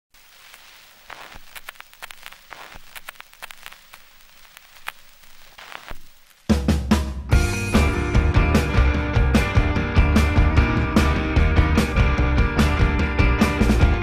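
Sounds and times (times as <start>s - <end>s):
crackling static with pops: 0.1s - 6.8s
loud rock music: 6.6s - 14.0s.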